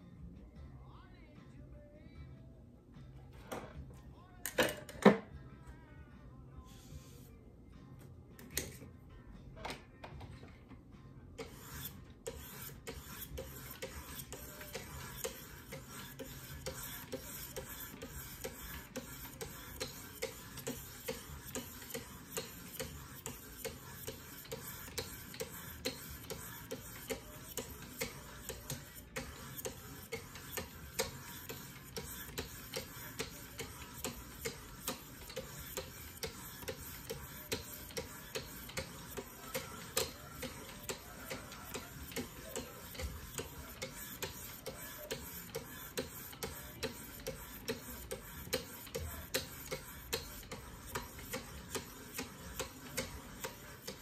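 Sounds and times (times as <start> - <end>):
sharpening paddles scraping blade: 11.4 - 54.0.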